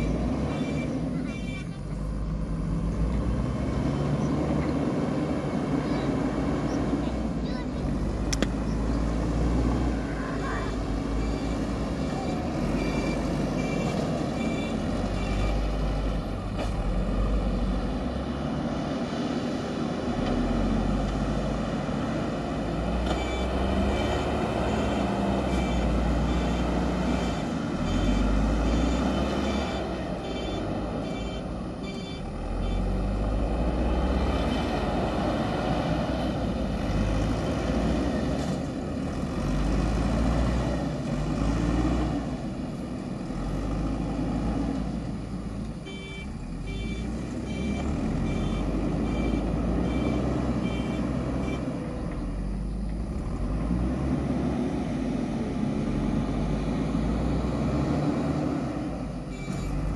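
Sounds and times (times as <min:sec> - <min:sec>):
diesel engine under load: 0:00.0 - 0:59.9
reversing alarm beeping: 0:11.1 - 0:15.8, 0:23.1 - 0:33.0, 0:45.8 - 0:51.7, 0:59.3 - 0:59.8.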